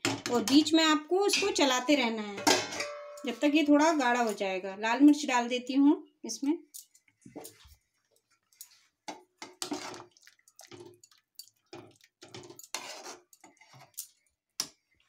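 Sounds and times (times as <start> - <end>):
spoon scraping metal pan: 9.4 - 10.1, 11.7 - 14.1.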